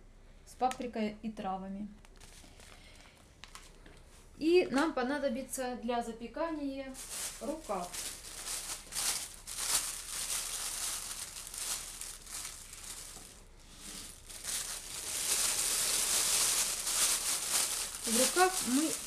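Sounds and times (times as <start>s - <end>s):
plastic sleeve crinkling: 2.0s - 4.0s, 6.9s - 19.0s.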